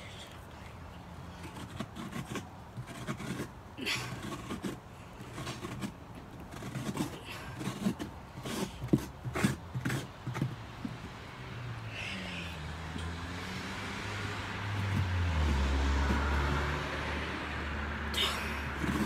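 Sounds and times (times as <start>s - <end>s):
scraper scraping pumpkin pulp: 1.3s - 10.9s, 18.2s - 19.0s.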